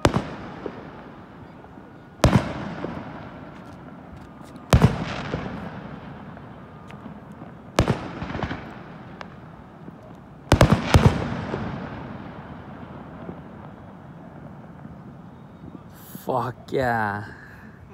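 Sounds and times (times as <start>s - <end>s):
firework booms with echo: 0.0s - 15.9s.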